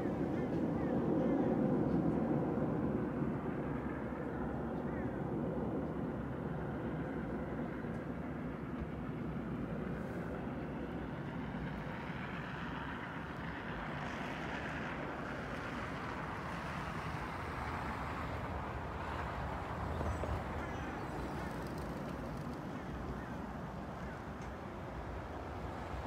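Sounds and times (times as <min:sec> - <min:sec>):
road traffic rumble: 0:06.5 - 0:26.0
tyre noise of passing cars: 0:07.2 - 0:26.0.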